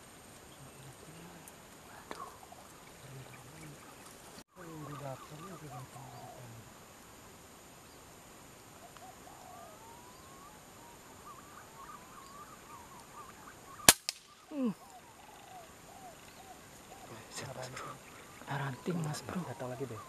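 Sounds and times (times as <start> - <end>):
small birds chirping: 0.0 - 20.0
sharp gunshot: 13.9 - 14.3.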